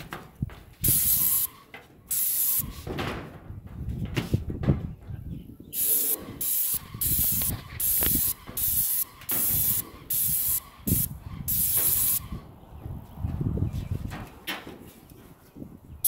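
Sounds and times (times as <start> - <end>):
spray gun hissing: 0.8 - 2.8, 5.8 - 12.4.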